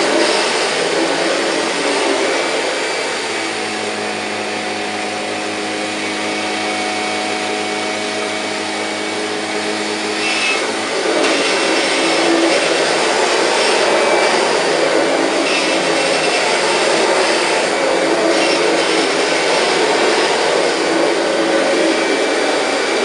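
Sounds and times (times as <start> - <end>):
vacuum cleaner running on carpet: 0.0 - 23.0.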